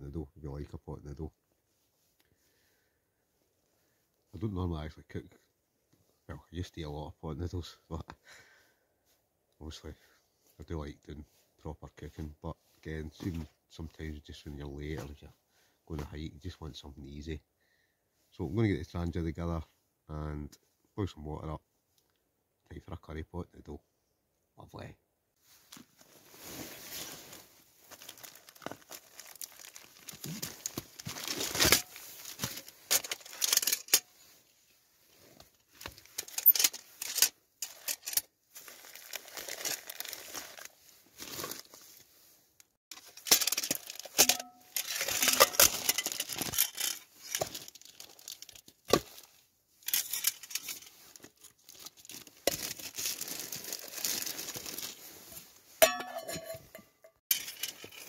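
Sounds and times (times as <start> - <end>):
plastic bag crinkling: 26.8 - 34.0, 35.8 - 41.9, 42.9 - 55.2
buckle and metal parts clicking: 31.4 - 34.2, 35.7 - 38.3, 42.9 - 49.1, 49.8 - 51.5, 55.8 - 58.0.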